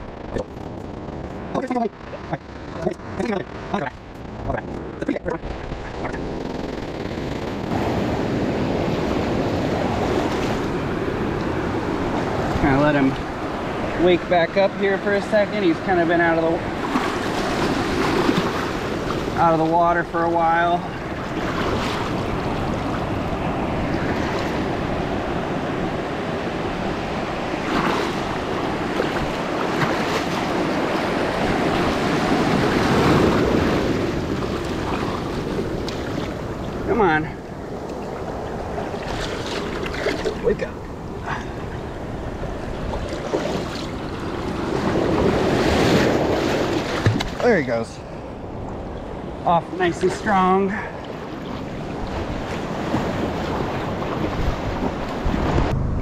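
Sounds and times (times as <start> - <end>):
surf washing up beach: 7.2 - 55.8
wind buffeting microphone: 50.7 - 56.0.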